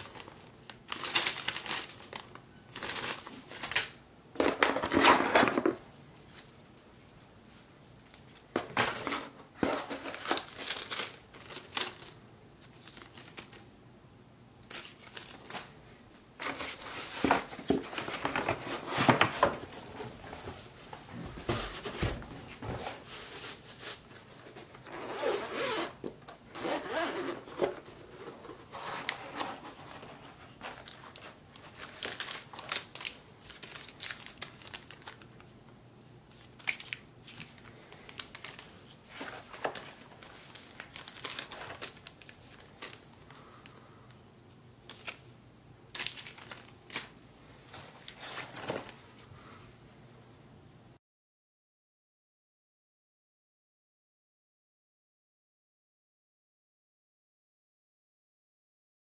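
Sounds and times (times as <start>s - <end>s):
rustling and scraping: 8.5s - 13.4s, 14.7s - 26.0s, 26.6s - 32.2s, 39.0s - 41.9s, 47.6s - 49.3s
zippered case opening: 24.8s - 30.1s.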